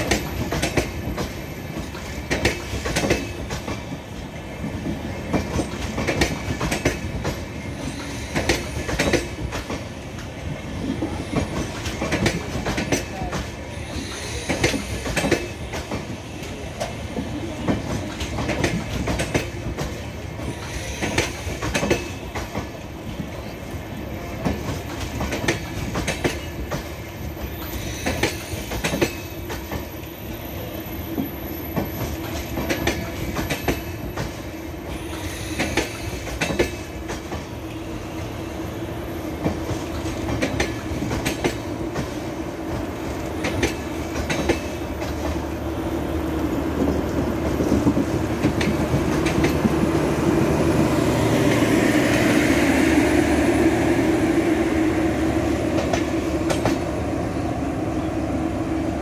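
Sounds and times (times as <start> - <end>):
wheels clicking over rail joints: 0.0 - 4.0, 4.6 - 7.5, 16.8 - 22.8, 31.7 - 35.0, 39.4 - 45.4
train wheels rumbling on rail: 0.0 - 59.0.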